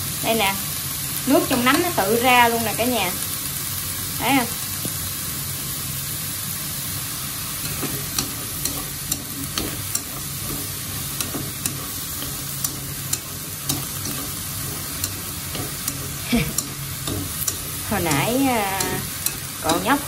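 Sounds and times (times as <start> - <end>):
vegetables sizzling in a wok: 0.0 - 20.0
chopsticks clicking against pan: 7.6 - 20.0.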